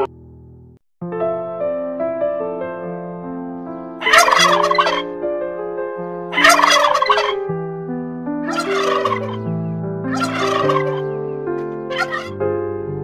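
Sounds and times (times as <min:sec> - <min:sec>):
soft background piano music: 0:01.1 - 0:13.0
turkey gobbling: 0:04.0 - 0:05.1, 0:06.3 - 0:07.4, 0:08.5 - 0:09.5, 0:10.1 - 0:11.2, 0:11.8 - 0:12.4.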